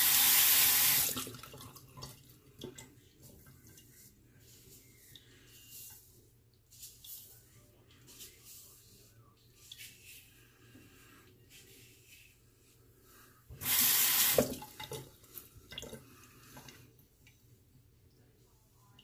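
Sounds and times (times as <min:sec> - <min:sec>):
tap water splashing into basin: 0:13.6 - 0:16.0.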